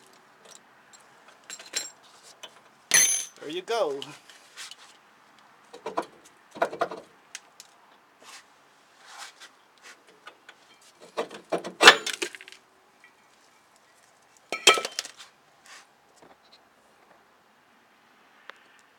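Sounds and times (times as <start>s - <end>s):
metallic clinks of brake rotor: 0.5s - 3.5s.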